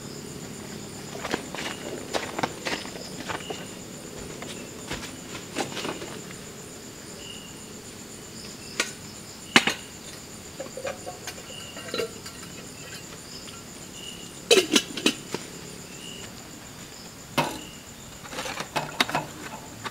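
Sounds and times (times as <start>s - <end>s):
crickets chirping: 0.0s - 19.9s
sharp knocks and clatters: 8.8s - 13.7s, 17.3s - 19.9s.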